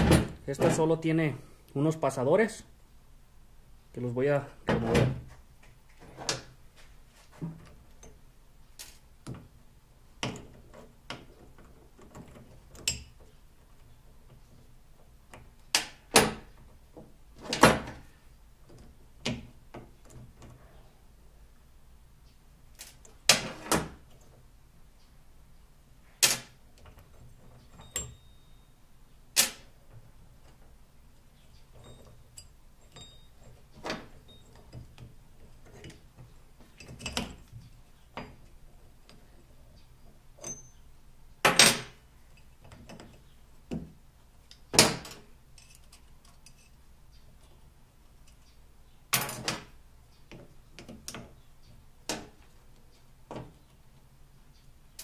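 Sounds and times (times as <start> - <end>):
pliers and pins clinking on steel: 26.8 - 28.6, 31.6 - 36.2, 36.8 - 37.6, 40.4 - 40.9, 44.5 - 46.8.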